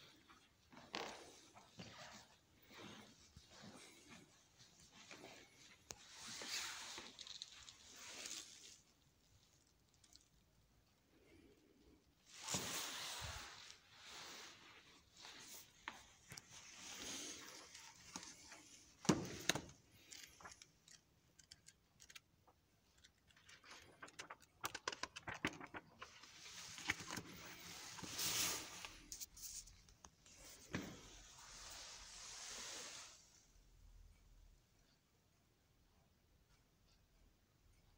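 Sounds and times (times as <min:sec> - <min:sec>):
paper booklets rustling: 0:12.3 - 0:31.2.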